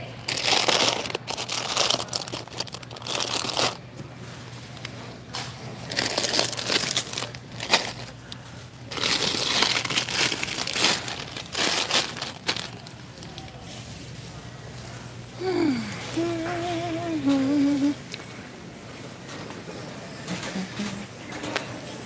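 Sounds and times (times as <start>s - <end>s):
plastic bags crinkling: 0.0s - 4.0s, 4.6s - 13.8s
low steady hum: 0.0s - 22.0s.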